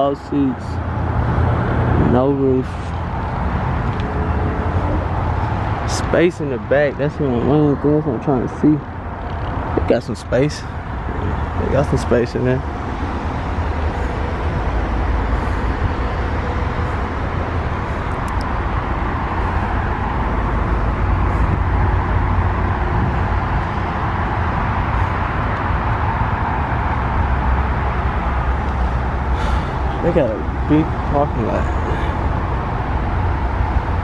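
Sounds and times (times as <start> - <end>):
traffic rumble: 0.0 - 34.0.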